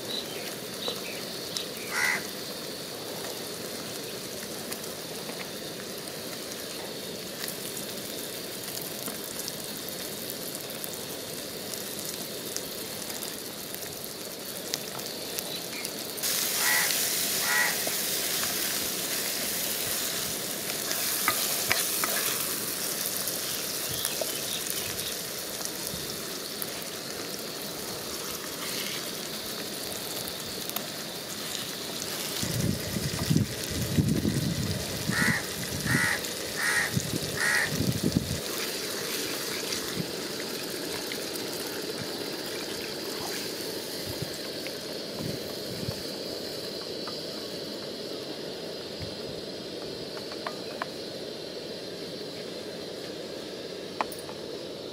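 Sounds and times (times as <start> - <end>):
food sizzling in a pot: 0.0 - 54.9
crow cawing: 1.8 - 2.3, 16.6 - 17.9, 35.1 - 37.8.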